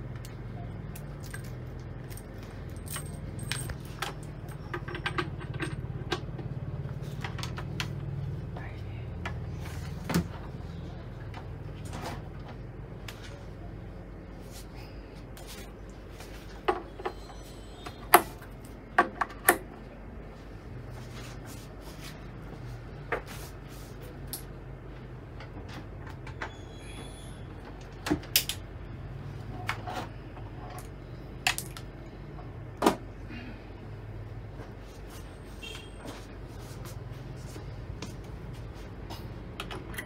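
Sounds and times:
cable connectors clicking into jacks: 27.8s - 28.7s.

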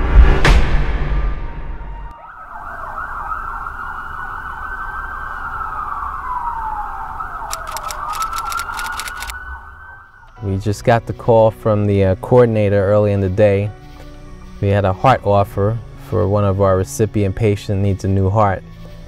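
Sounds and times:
ambulance siren: 1.9s - 10.5s
sharp clicks: 7.5s - 9.4s.

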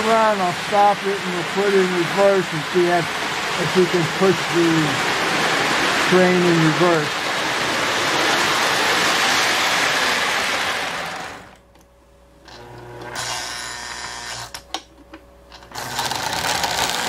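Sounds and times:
model train motor and wheels rattling: 15.5s - 17.0s.

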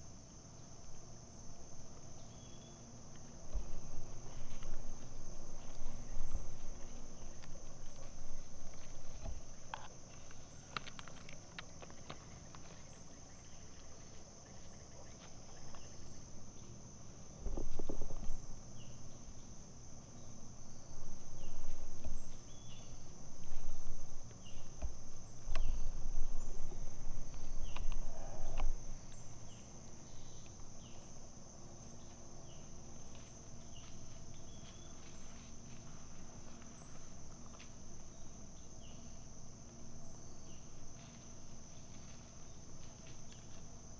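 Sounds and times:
high-pitched insect chorus: 0.0s - 43.9s
low rumbling on microphone: 20.7s - 29.5s.

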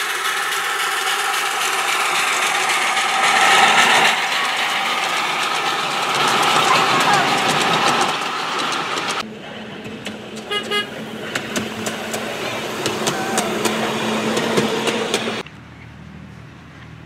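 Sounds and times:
miniature train low hum: 0.0s - 17.0s.

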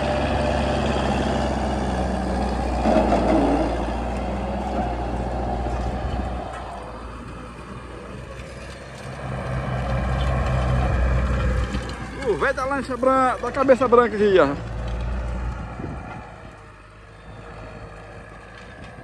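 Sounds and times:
tractor diesel engine running: 0.0s - 19.0s.

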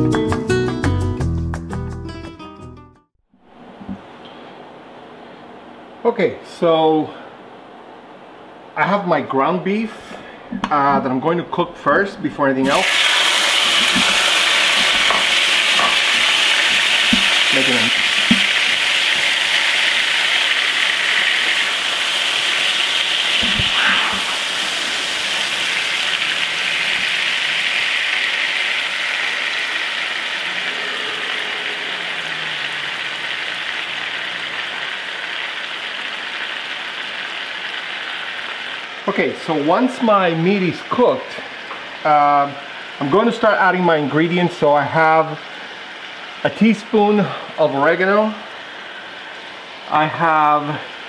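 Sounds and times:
meat sizzling in a skillet: 12.6s - 39.1s, 44.6s - 46.9s, 48.2s - 50.3s.

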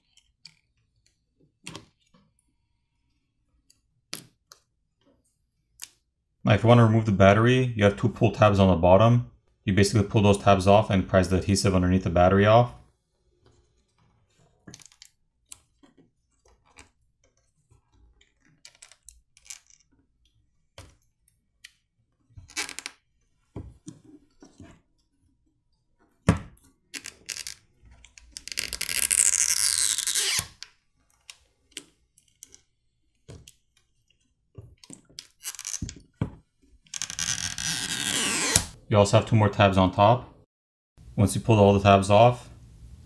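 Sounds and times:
adhesive strip peeling: 28.4s - 30.6s, 35.3s - 35.8s, 36.9s - 38.8s.

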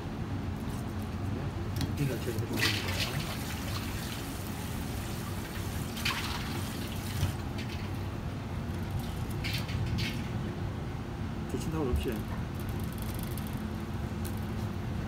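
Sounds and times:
water splashing in steel bowl: 5.5s - 7.9s.

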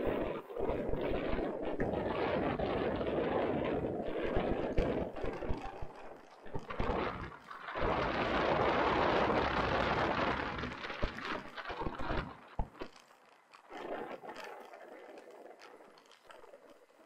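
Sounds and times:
bike tyres rolling over ground: 0.0s - 17.0s
wind buffeting microphone: 0.0s - 17.0s
bike knocks and rattles: 9.3s - 14.7s.

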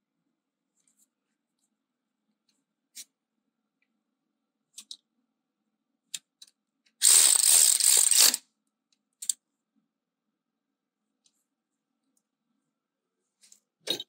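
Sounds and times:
socket ratchet clicking rapidly: 7.0s - 8.4s.

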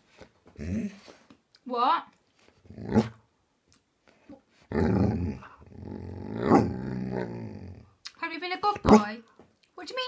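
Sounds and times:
dog grumbling: 2.7s - 3.2s, 4.7s - 7.9s.

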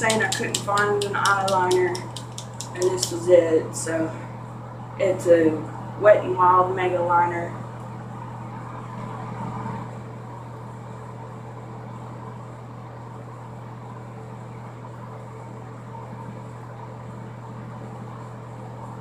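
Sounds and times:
ventilation fan humming: 0.0s - 19.0s.

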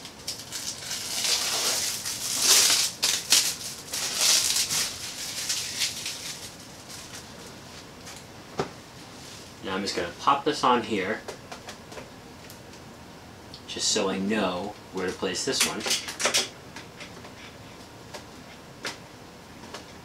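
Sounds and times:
plastic wrapping crinkling: 0.0s - 8.3s.

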